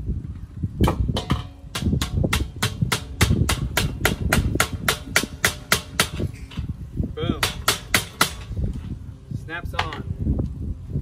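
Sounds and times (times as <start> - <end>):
hammer strikes on metal cap: 0.8 - 6.6, 7.4 - 8.6.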